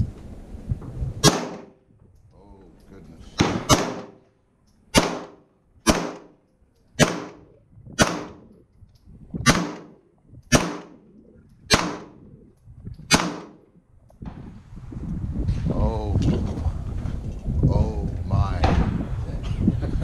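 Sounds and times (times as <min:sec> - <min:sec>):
pistol shots with echo: 0:01.2 - 0:01.8, 0:03.4 - 0:04.2, 0:04.9 - 0:06.4, 0:07.0 - 0:08.5, 0:09.4 - 0:11.1, 0:11.7 - 0:12.2, 0:13.1 - 0:13.6.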